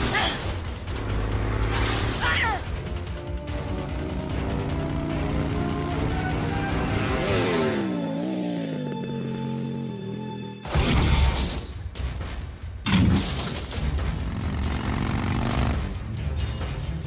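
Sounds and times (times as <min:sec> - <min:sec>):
film music: 0:00.0 - 0:17.0
motorcycle engine running: 0:02.7 - 0:10.0, 0:13.9 - 0:16.2.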